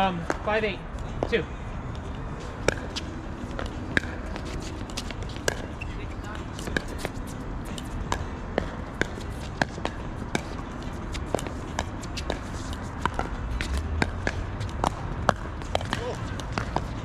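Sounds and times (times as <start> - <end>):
paddles striking pickleball: 2.6 - 5.8, 7.8 - 17.0.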